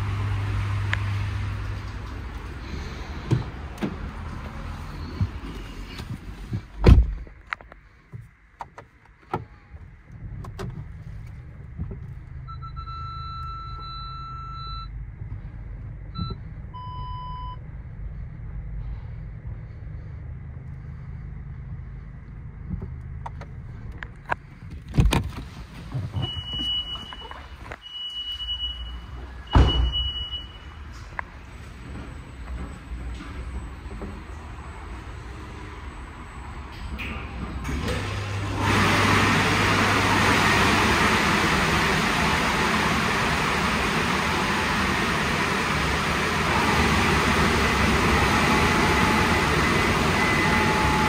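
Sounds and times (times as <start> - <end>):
sharp thunks: 6.5 - 7.4
low machine hum: 9.5 - 24.7, 30.4 - 51.0.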